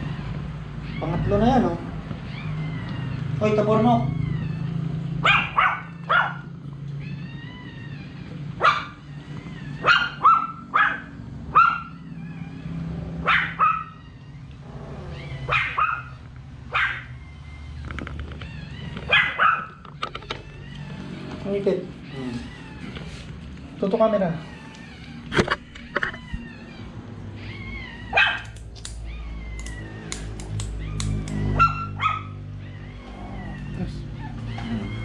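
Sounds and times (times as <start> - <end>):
dog barking: 5.2 - 6.5, 8.6 - 9.0, 9.8 - 12.0, 13.2 - 14.0, 15.4 - 17.1, 19.1 - 19.8, 28.1 - 28.6, 31.0 - 32.4.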